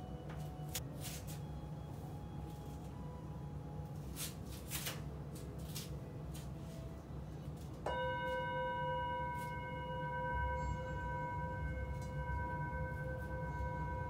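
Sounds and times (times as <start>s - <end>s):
singing bowl ringing: 7.8s - 14.0s.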